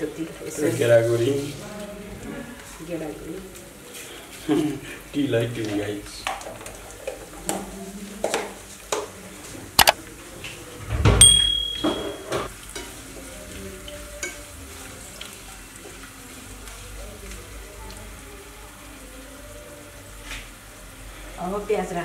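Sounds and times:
oil sizzling in a frying pan: 0.0 - 10.9, 12.1 - 22.0.

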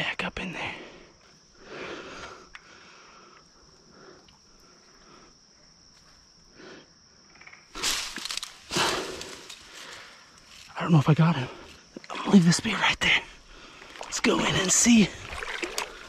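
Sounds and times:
night insects droning: 0.0 - 16.0
crashing in dense brush: 7.8 - 10.1.

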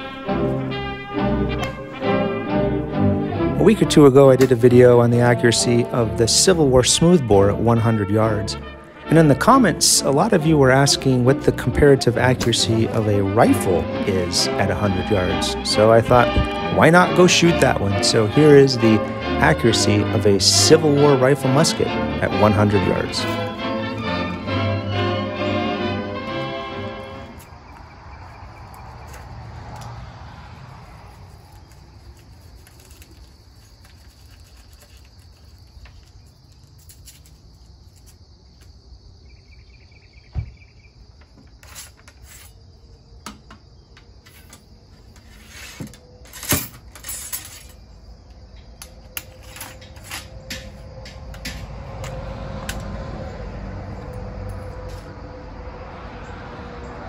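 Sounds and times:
insects chirring: 26.3 - 57.0.

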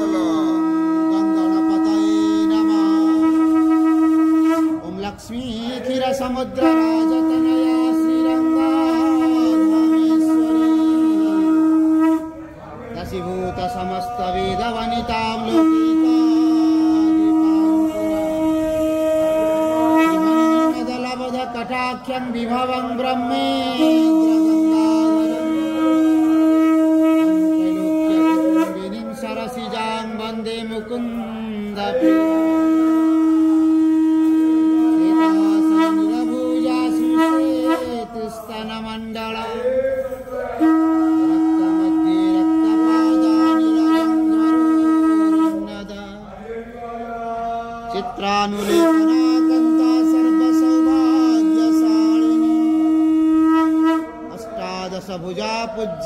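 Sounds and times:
conch shell blown: 0.0 - 46.3, 47.6 - 56.0
chanting voices: 0.0 - 56.0.

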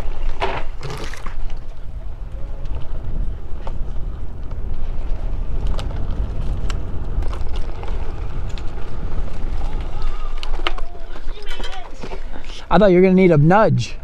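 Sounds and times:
tyres rolling over dirt: 0.0 - 12.8
wind rumbling on microphone: 0.0 - 12.8.

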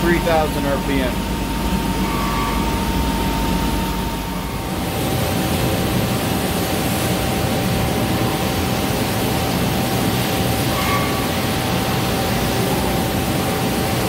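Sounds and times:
lathe high whine: 0.0 - 14.0
coolant spray hiss: 4.6 - 14.0.

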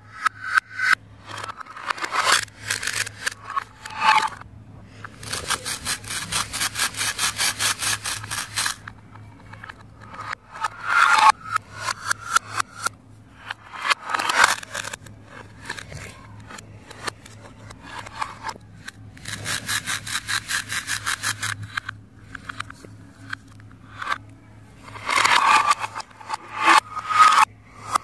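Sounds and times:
plastic scraping: 1.3 - 12.9, 24.8 - 27.5
rapid ticks: 5.0 - 8.9, 18.0 - 24.3.

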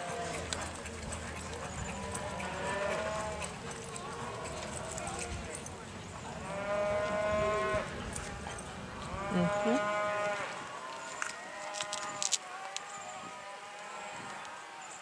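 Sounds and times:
cattle bawling: 0.0 - 8.0.

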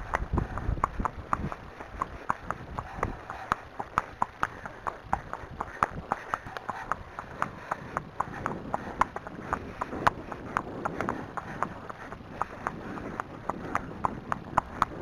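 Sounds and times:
horse hooves clip-clopping on tarmac: 0.0 - 15.0.

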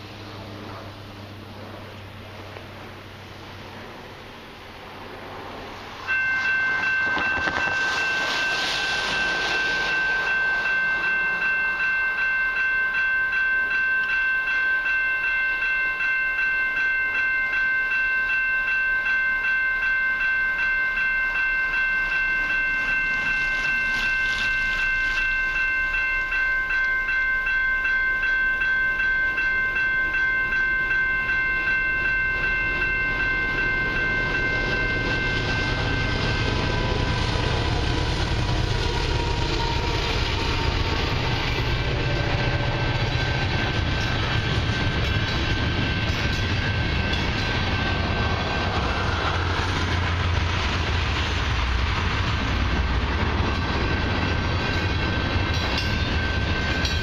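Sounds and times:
cars swishing on wet road: 4.8 - 11.4
level crossing bell ringing: 6.1 - 8.6, 9.2 - 36.2.

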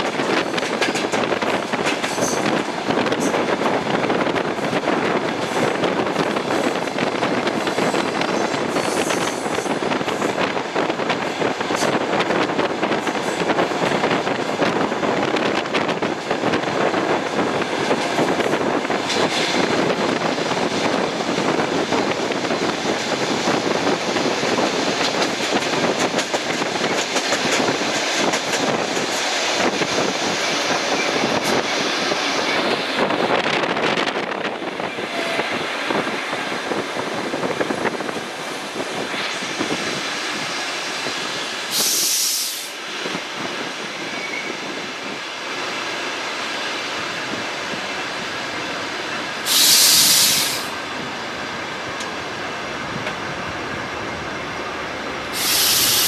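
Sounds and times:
train wheels clattering: 0.0 - 10.4, 22.8 - 33.0
short high hiss: 41.7 - 42.7, 49.5 - 50.7, 55.3 - 56.0.

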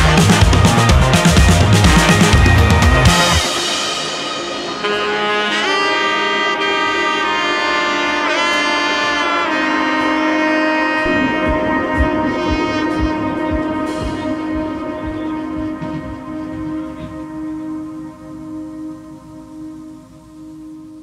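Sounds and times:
low regular beat: 0.0 - 5.1, 11.0 - 20.3
instrument playing held notes: 0.0 - 21.0.

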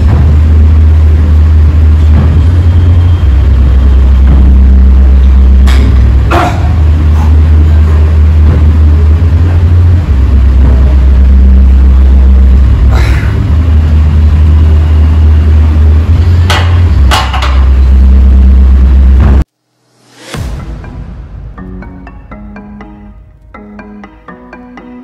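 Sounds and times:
loud low rumble: 0.0 - 19.5.

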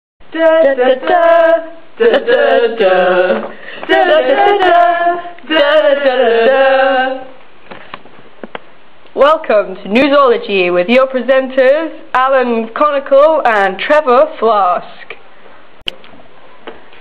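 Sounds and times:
women singing unaccompanied: 0.2 - 7.5.

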